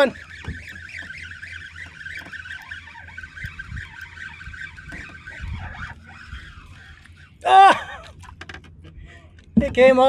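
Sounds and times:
fishing reel drag buzzing: 0:00.0 - 0:07.5.

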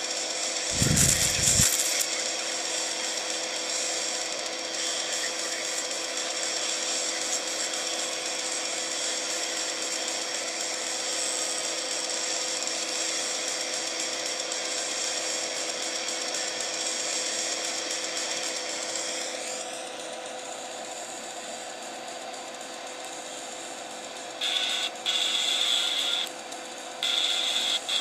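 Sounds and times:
plasma arc hissing and buzzing: 0:00.7 - 0:02.1.

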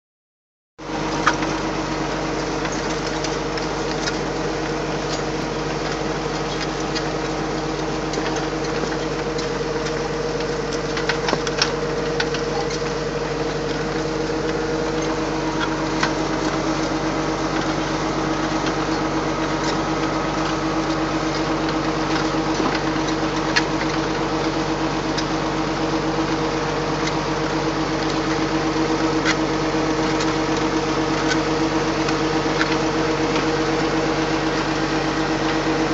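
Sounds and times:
tractor engine running: 0:00.8 - 0:35.9
implement clicking and rattling: 0:02.4 - 0:25.5.

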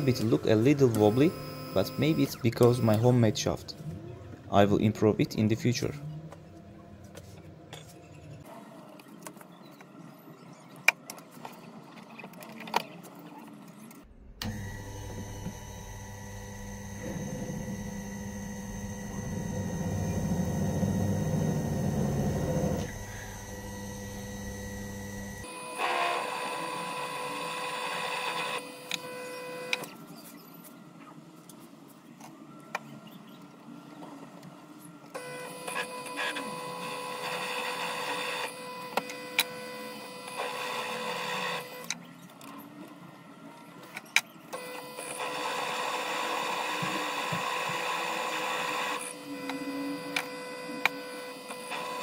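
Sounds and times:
drill bit cutting metal: 0:00.0 - 0:03.1, 0:14.4 - 0:29.8, 0:35.2 - 0:41.9, 0:44.6 - 0:52.0
drill motor whine: 0:00.0 - 0:03.2, 0:14.4 - 0:30.0, 0:35.2 - 0:41.9, 0:44.5 - 0:52.0.

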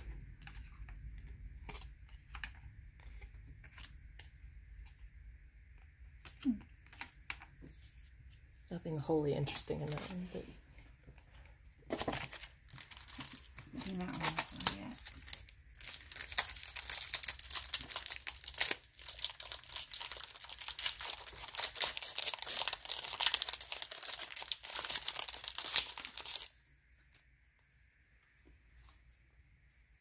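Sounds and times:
wrapper tearing and crinkling: 0:11.9 - 0:26.5.

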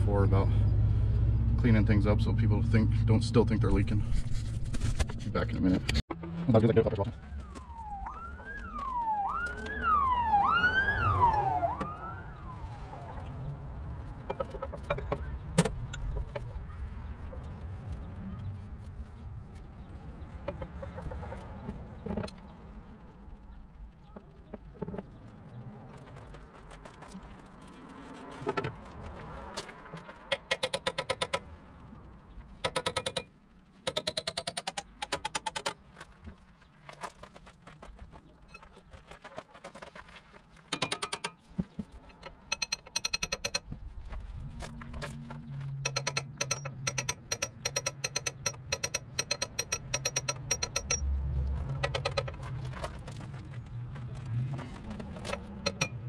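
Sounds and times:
siren wailing: 0:06.1 - 0:14.3
rapid evenly spaced clicking: 0:45.9 - 0:51.0.

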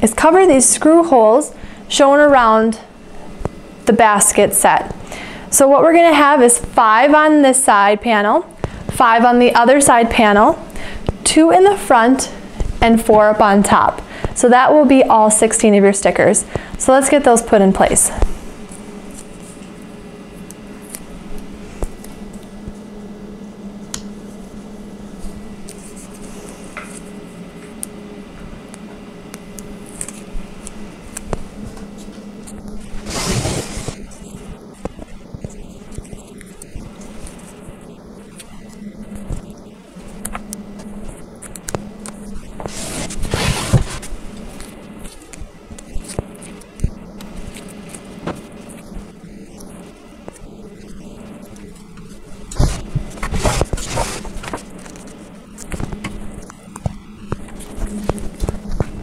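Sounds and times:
steady low hum: 0:00.0 - 0:59.0
rustling scrape: 0:32.0 - 0:34.5, 0:42.2 - 0:46.6, 0:49.7 - 0:56.4
stickers crinkling and ticking: 0:34.1 - 0:42.6, 0:44.1 - 0:59.0.

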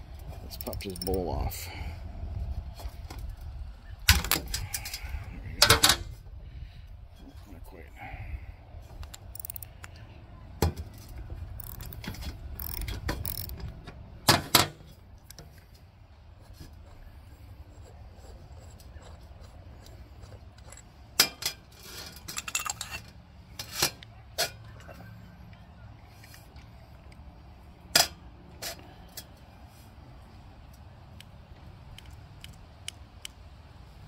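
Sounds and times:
ratchet clicking: 0:00.5 - 0:01.2, 0:09.2 - 0:09.8, 0:11.6 - 0:13.6
metal clinks and knocks: 0:09.2 - 0:09.7, 0:20.6 - 0:23.2.

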